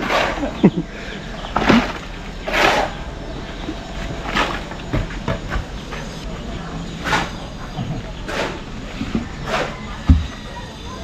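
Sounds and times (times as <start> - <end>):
shovels scraping wet concrete: 0.0 - 3.0, 8.2 - 10.0.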